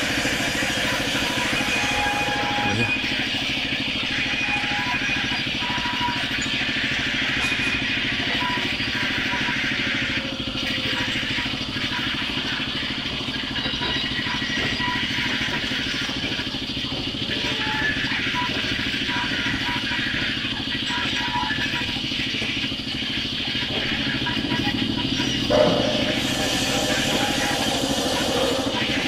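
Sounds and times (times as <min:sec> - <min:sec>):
low throb from saw drive: 0:21.6 - 0:29.0.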